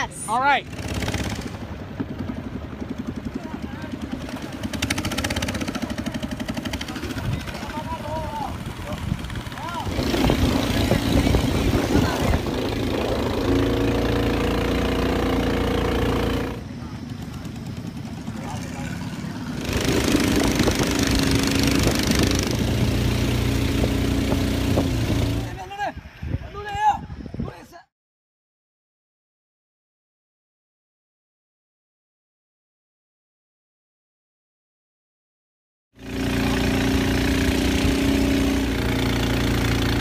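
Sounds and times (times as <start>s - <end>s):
boat engine running: 0.6s - 25.6s, 36.0s - 40.0s.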